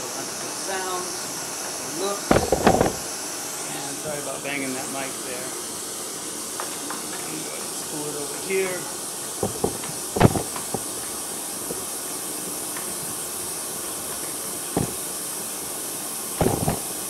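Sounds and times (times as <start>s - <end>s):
steady hiss: 0.0s - 17.0s
cable knocking and rustling: 2.3s - 3.0s, 9.4s - 10.9s, 11.7s - 11.9s, 14.8s - 15.0s, 16.4s - 16.9s.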